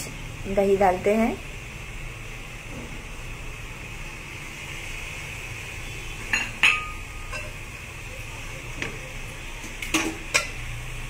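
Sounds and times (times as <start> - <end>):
steady hiss: 0.0 - 11.0
metal spoon clinking on pot: 6.3 - 7.6.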